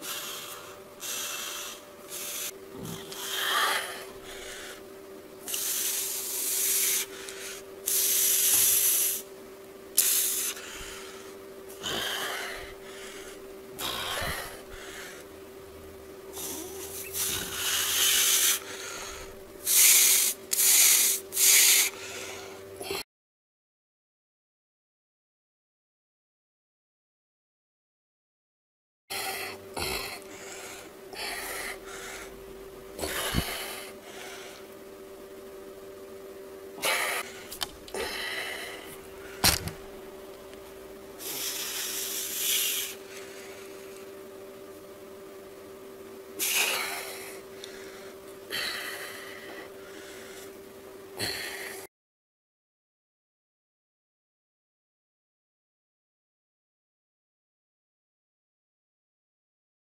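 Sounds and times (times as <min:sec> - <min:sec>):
man breathing heavily: 0:00.0 - 0:09.3, 0:10.0 - 0:15.4, 0:16.3 - 0:23.0, 0:29.1 - 0:34.8, 0:36.7 - 0:40.3, 0:41.1 - 0:44.0, 0:46.4 - 0:51.9
electrical hum: 0:00.0 - 0:23.0, 0:29.1 - 0:51.9.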